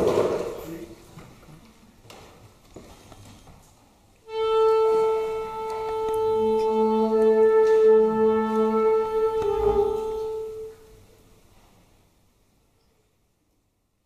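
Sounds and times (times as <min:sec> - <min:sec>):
flutes and clarinet playing: 0:04.2 - 0:11.0.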